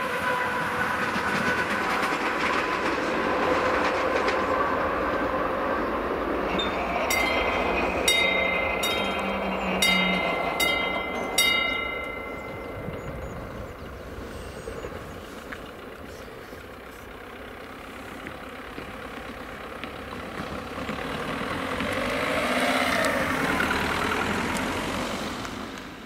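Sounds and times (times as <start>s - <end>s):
car driving past: 19.8s - 26.0s.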